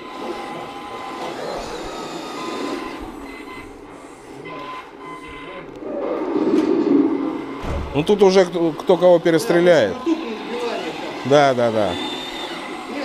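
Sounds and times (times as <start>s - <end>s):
electric motor whirr: 0.0s - 3.5s, 8.9s - 13.0s
faint whine: 1.8s - 8.6s.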